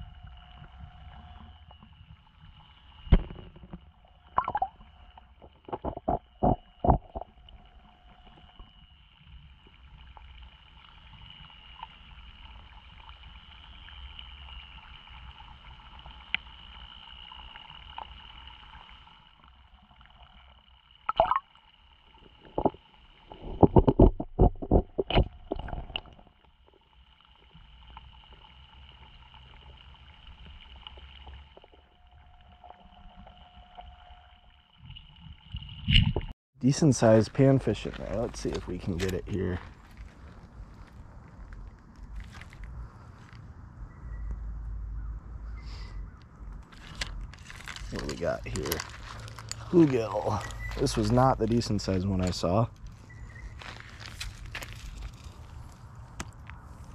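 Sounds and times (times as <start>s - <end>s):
faint high whine: 0.0s - 56.9s
water gurgling and lapping: 3.1s - 8.6s, 12.4s - 21.5s, 22.1s - 43.2s
sharp knocks and clicks: 23.5s - 26.2s.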